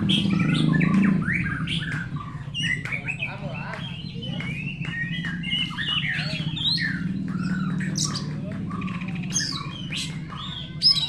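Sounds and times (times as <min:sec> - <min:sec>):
birds singing in chorus: 0:00.0 - 0:11.0.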